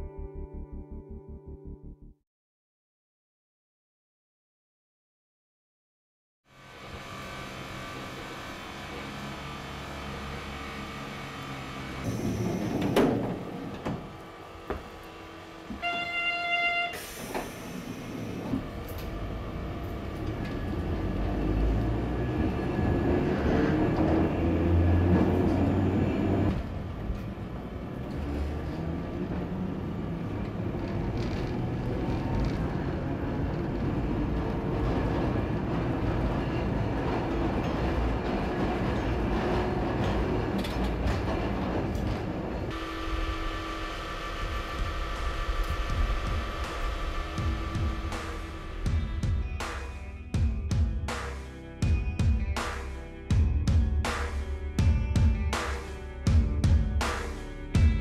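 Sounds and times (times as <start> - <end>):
streetcar motor and wheels rumbling: 6.5 - 50.5.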